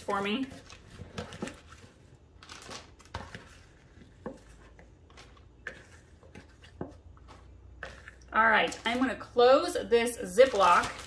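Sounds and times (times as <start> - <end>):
plastic bag rustling: 0.0 - 6.0, 9.9 - 11.0.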